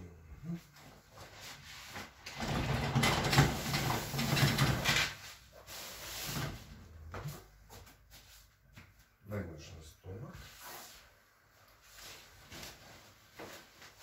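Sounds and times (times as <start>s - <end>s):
sheet rustling: 10.5s - 14.0s.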